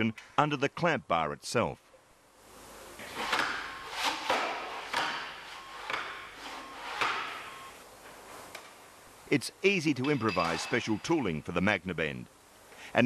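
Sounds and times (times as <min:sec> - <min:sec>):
sheet metal scraping: 0:03.0 - 0:07.7.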